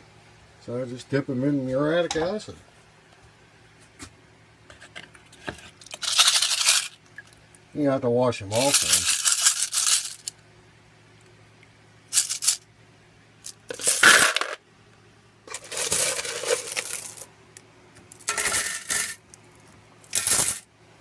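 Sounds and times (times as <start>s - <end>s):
coins jingling in metal strainer: 5.9s - 7.0s, 8.6s - 10.3s, 12.2s - 12.6s, 13.5s - 14.6s, 15.5s - 17.2s, 18.2s - 19.2s, 20.1s - 20.6s.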